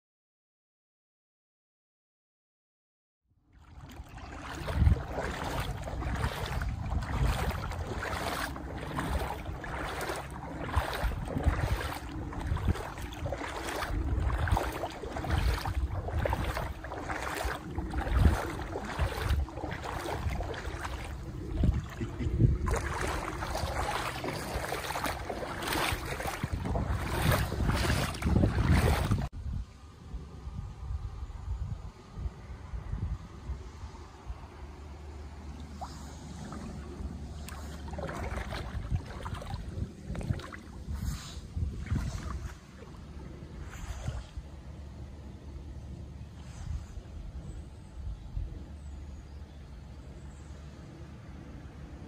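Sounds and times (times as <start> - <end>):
wading footsteps splashing in water: 3.5 - 29.3, 35.4 - 44.9
wind rumble on microphone: 3.6 - 52.0.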